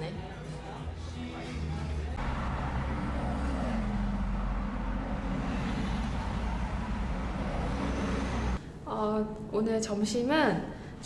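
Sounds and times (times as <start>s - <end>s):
vehicle road noise rumble: 2.2s - 8.6s.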